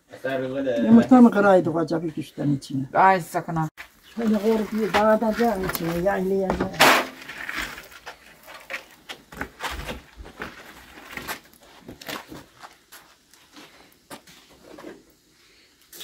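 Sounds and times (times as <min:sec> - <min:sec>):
fire crackling: 0:00.0 - 0:16.0
wooden pole raking embers: 0:03.8 - 0:16.0.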